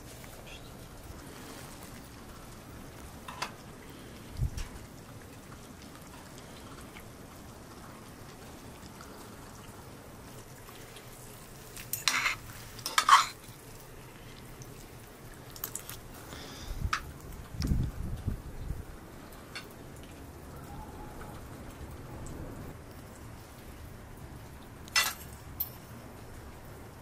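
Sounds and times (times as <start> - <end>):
metal utensils clinking on pots: 11.8 - 13.4, 24.9 - 25.8.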